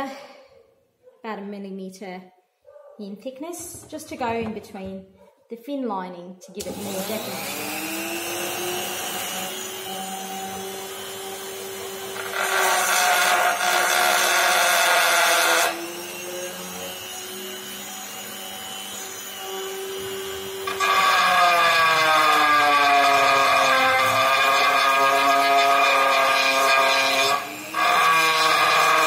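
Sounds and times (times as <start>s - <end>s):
rotary tool grinding wood: 6.6s - 29.0s.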